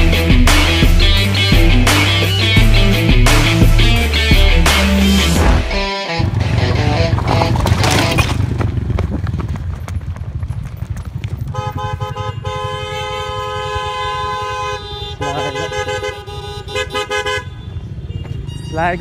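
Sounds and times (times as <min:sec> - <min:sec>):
motorcycle engine running: 0:02.6 - 0:15.8
gravel noise: 0:05.4 - 0:15.7
wind: 0:06.1 - 0:19.0
vehicle horn blasts: 0:11.5 - 0:19.0.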